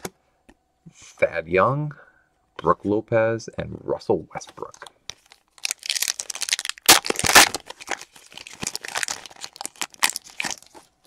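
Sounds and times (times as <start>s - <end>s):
foil wrapper tearing and crumpling: 5.1s - 10.9s.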